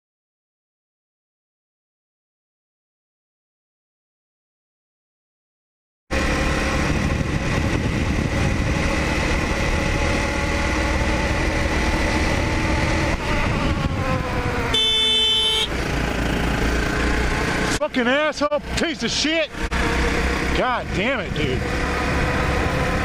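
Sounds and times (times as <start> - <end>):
motorcycle engine running: 6.1 - 23.0
wind noise: 6.2 - 15.0
horn: 14.7 - 15.7.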